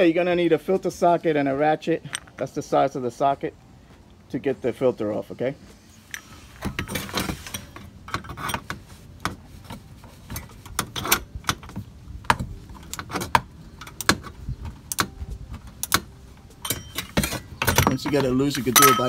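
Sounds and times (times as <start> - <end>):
ratchet metallic clicks: 12.8 - 15.2, 15.8 - 19.0.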